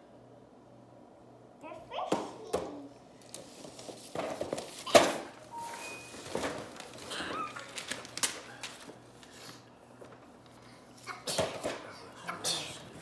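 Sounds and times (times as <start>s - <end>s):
wrapping paper tearing and crumpling: 3.2s - 9.6s.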